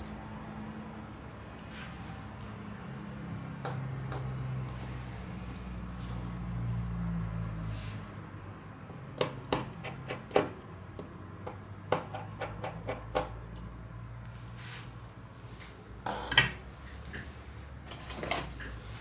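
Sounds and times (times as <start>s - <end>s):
repair tools clicking and tapping: 0.0s - 0.2s, 9.2s - 14.6s.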